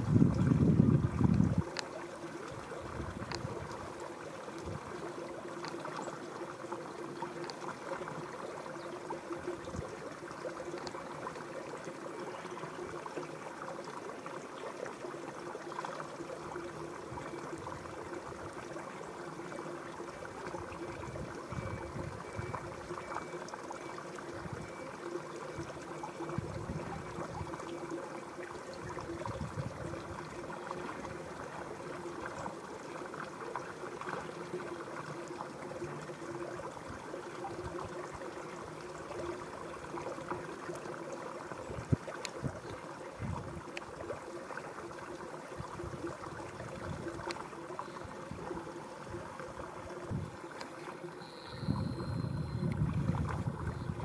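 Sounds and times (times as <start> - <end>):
river water flowing and trickling: 0.0 - 54.0
faint low hum: 46.8 - 54.0.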